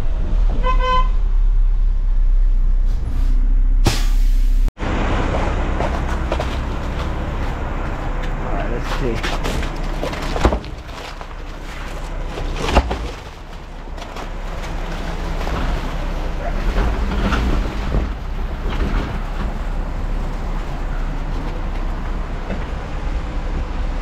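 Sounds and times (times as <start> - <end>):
diesel engine running: 0.0 - 24.0
sharp knock: 3.8 - 4.2.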